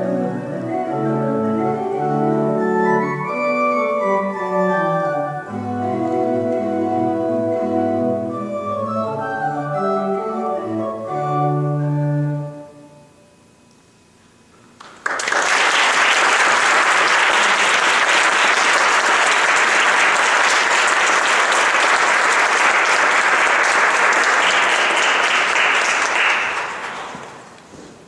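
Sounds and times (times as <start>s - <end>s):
audience applauding: 14.8s - 27.6s.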